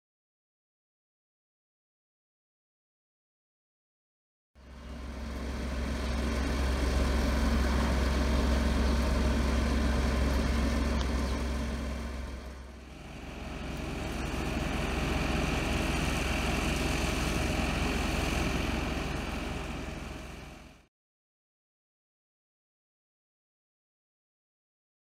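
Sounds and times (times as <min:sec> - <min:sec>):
diesel truck idling: 0:04.6 - 0:20.9
steady high whine: 0:04.6 - 0:20.9.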